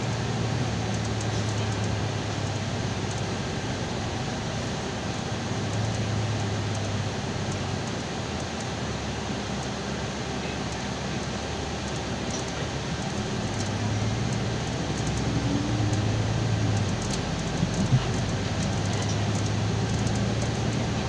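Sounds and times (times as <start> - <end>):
bus engine and road noise: 0.0 - 21.0
low drone: 11.6 - 21.0.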